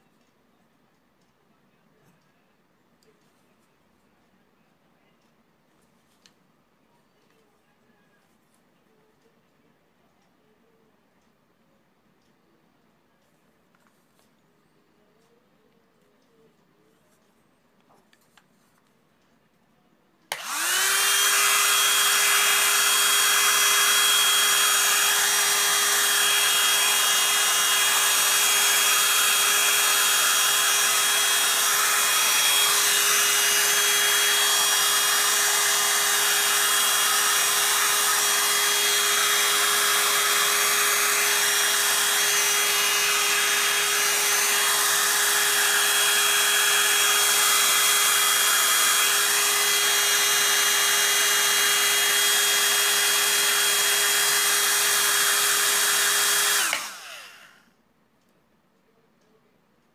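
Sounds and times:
hair dryer blowing air: 20.3 - 57.6
hair dryer motor hum: 20.3 - 57.6.

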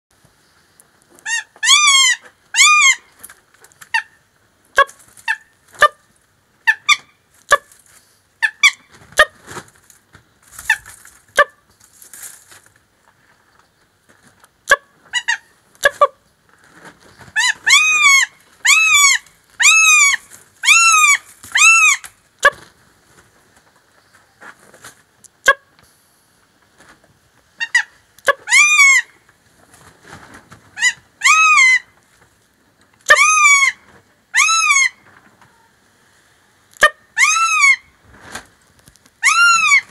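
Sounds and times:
hawk shrill cries: 1.3 - 3.0, 17.4 - 22.1, 27.6 - 29.1, 30.8 - 31.9, 33.1 - 35.0, 36.8 - 37.9, 39.2 - 39.9.

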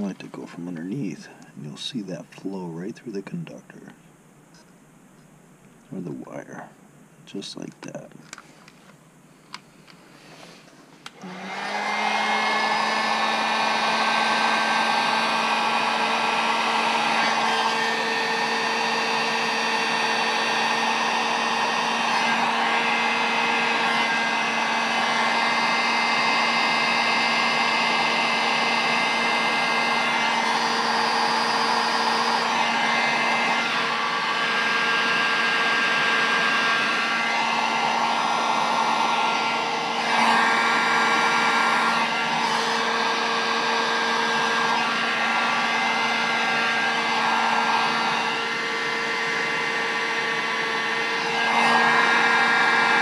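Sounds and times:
heat gun running: 11.0 - 53.0.

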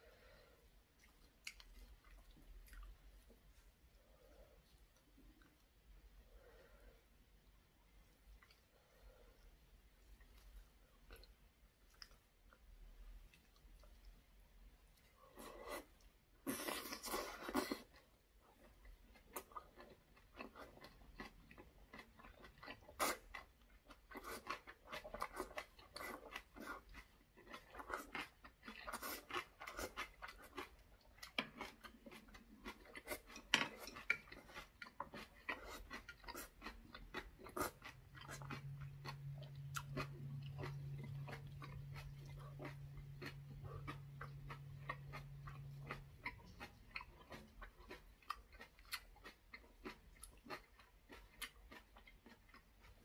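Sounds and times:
low steady hum: 0.0 - 53.0
mouth chewing clicks and smacks: 0.9 - 3.1, 18.6 - 53.0.

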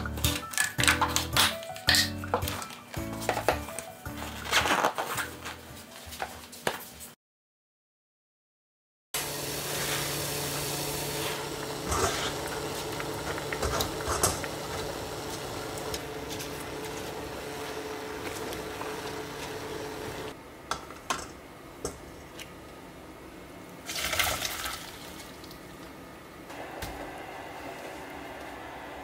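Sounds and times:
cooktop humming: 9.2 - 29.0.

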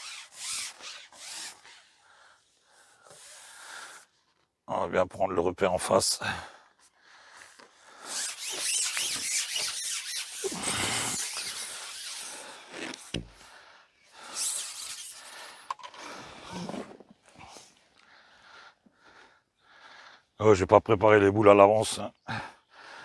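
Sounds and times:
fishing pole rubbing through hands: 0.0 - 2.0, 3.0 - 4.4, 7.6 - 13.3, 14.2 - 17.6.

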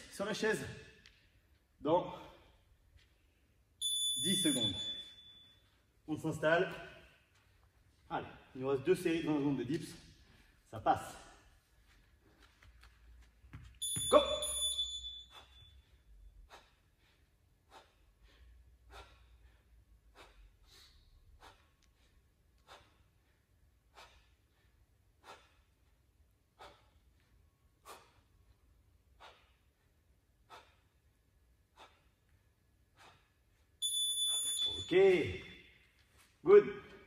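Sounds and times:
interval timer beep: 3.8 - 5.5, 13.8 - 15.8, 33.8 - 35.6.

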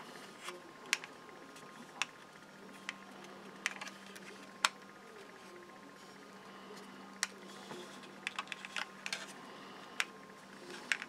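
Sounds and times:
plastic model parts clicking: 8.2 - 9.3, 10.7 - 11.0.

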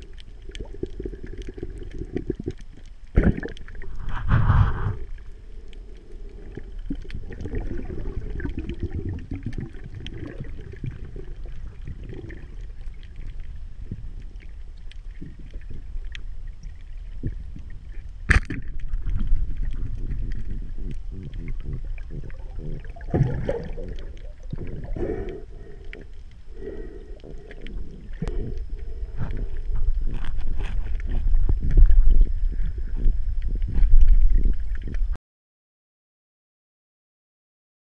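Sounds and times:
underwater bubbling: 0.0 - 35.2
churning water: 18.4 - 25.3.

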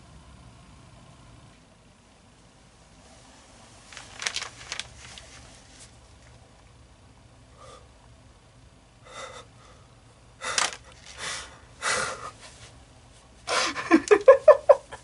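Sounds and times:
man sobbing: 11.8 - 12.4, 13.5 - 15.0.

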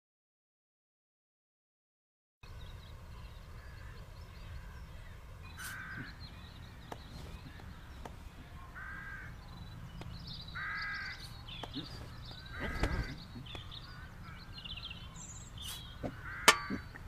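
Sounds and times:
low steady rumble: 2.4 - 17.0
faint chirps: 2.5 - 17.0
crow cawing: 5.6 - 6.2, 8.8 - 9.3, 10.6 - 11.2, 12.4 - 14.6, 16.1 - 17.0.

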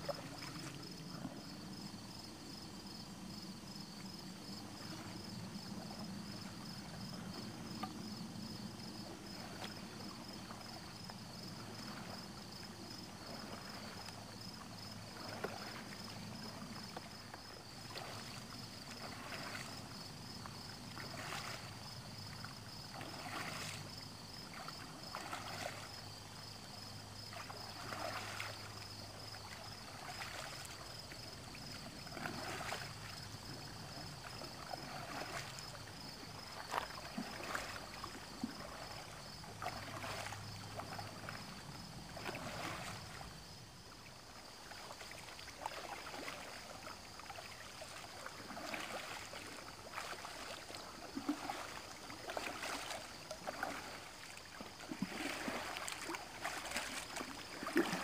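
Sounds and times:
paddle splashing in water: 0.0 - 1.9, 3.7 - 58.0.

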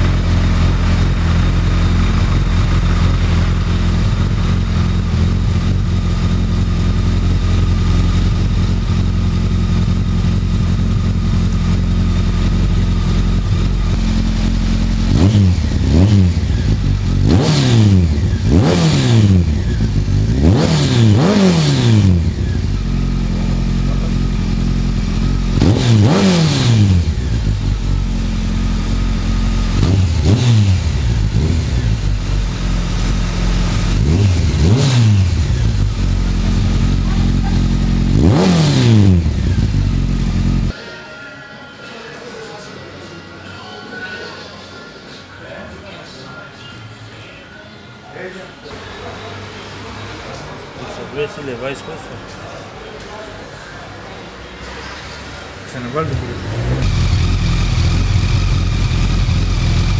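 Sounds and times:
motorcycle engine idling and revving: 0.0 - 40.8, 54.6 - 59.9.

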